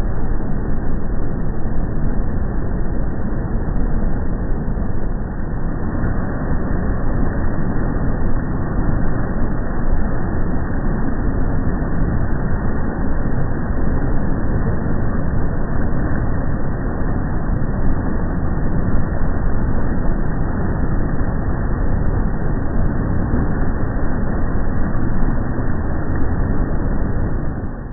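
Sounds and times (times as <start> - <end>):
motorboat engine rumble: 0.0 - 27.9.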